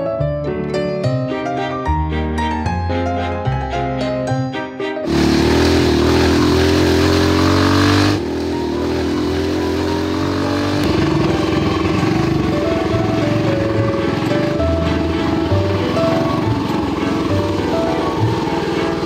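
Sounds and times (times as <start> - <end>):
go-kart engine revving: 5.0 - 19.0.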